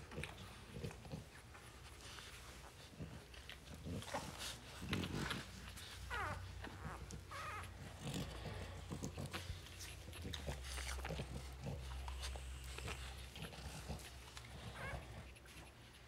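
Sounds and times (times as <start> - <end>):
snuffling and handling noises: 0.0 - 16.0
puppies squeaking: 5.7 - 8.7, 12.3 - 15.7.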